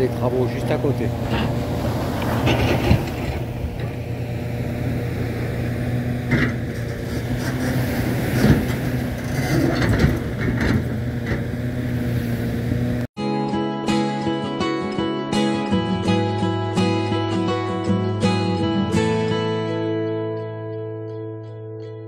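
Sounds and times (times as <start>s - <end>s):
construction machinery engine hum: 0.0s - 13.1s
small waves washing on beach: 6.8s - 10.4s.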